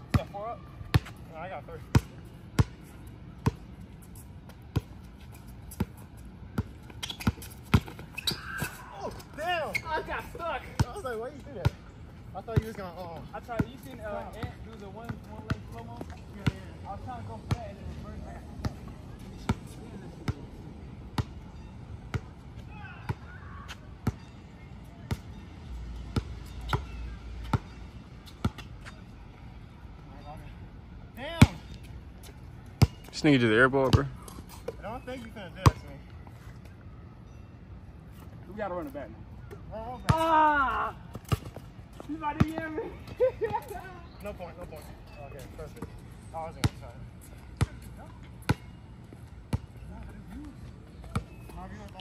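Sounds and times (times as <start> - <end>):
basketball bouncing on court: 3.4 - 3.6, 6.6 - 8.3, 13.5 - 16.7.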